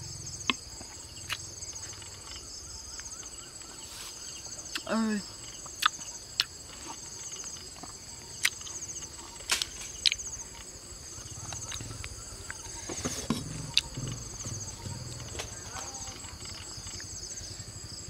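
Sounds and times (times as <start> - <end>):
insects trilling: 0.0 - 18.0.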